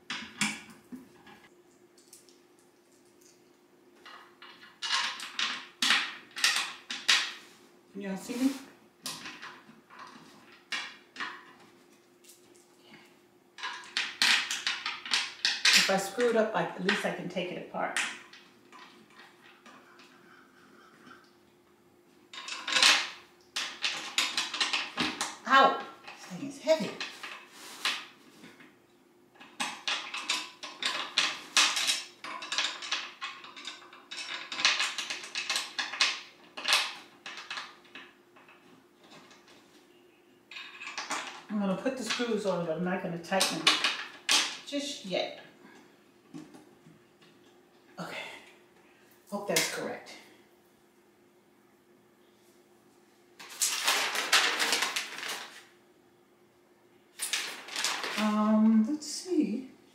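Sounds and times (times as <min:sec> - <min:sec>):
chair parts clinking and rattling: 0:04.0 - 0:07.4, 0:09.1 - 0:11.6, 0:13.6 - 0:17.0, 0:18.0 - 0:21.3, 0:22.3 - 0:28.1, 0:29.4 - 0:39.7, 0:40.5 - 0:41.5, 0:53.4 - 0:55.6, 0:57.2 - 0:58.3
paper rustling and crackling: 0:53.4 - 0:55.7, 0:57.2 - 0:58.3.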